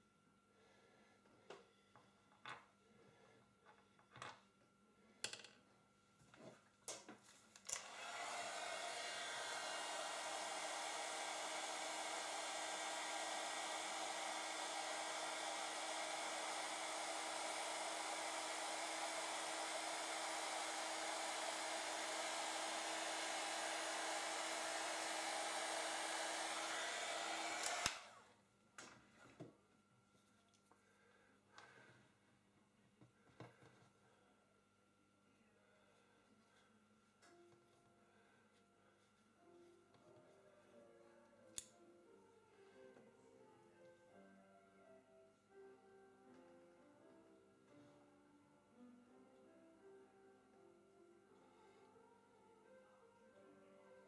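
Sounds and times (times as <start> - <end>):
hair dryer blowing: 7.7 - 28.3.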